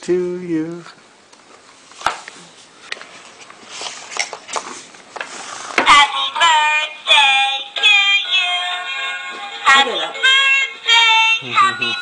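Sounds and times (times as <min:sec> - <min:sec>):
paper rustling: 0:02.9 - 0:05.8
tinny electronic birthday song: 0:05.8 - 0:12.0.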